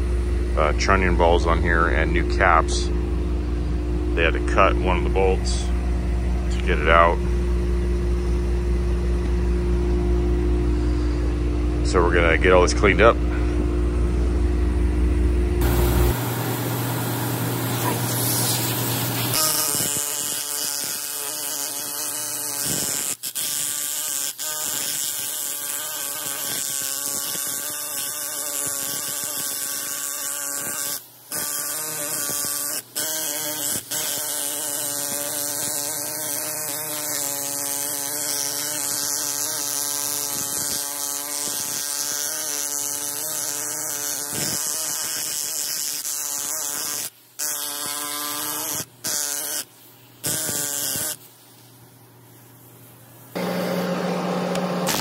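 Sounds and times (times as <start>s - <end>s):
low engine hum: 0.0s - 19.3s
wire wheel grinder on metal: 17.3s - 51.2s.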